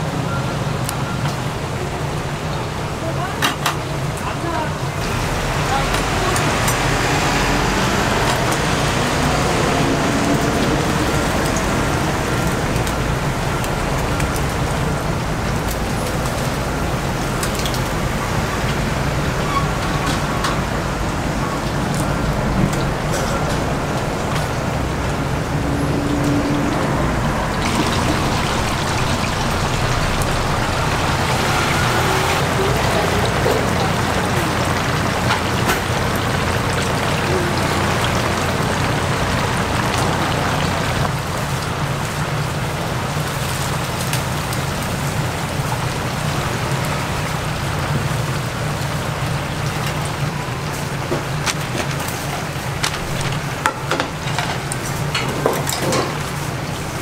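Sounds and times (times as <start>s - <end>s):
hot oil bubbling and crackling: 0.0s - 57.0s
low hum: 22.5s - 32.8s.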